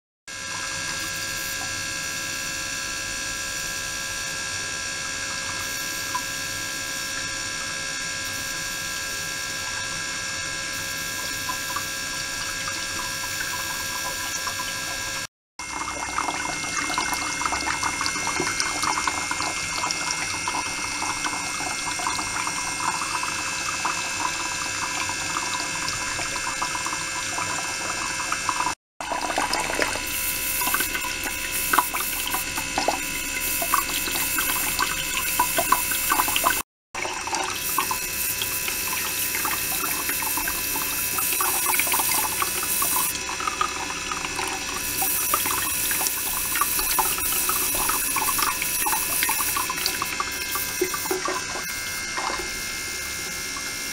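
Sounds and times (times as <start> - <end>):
water splashing into a tank: 11.0 - 53.9.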